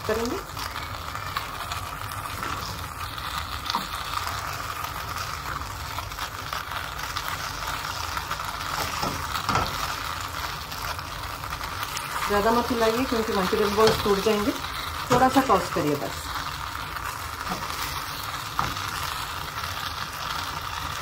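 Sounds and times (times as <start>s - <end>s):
food sizzling in a pan: 0.0s - 21.0s.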